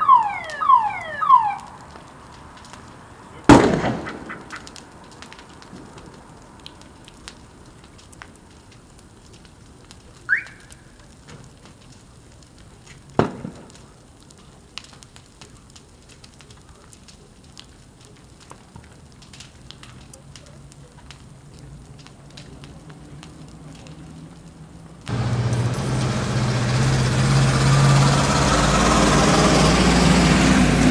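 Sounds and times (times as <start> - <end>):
fire crackling and popping: 0.0 - 30.9.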